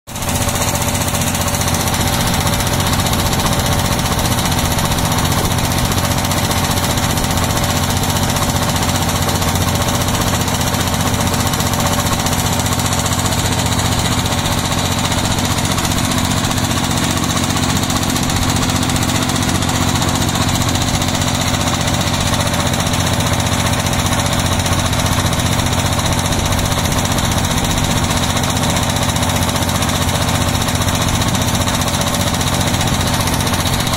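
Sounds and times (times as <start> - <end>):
boat engine running: 0.1 - 33.9.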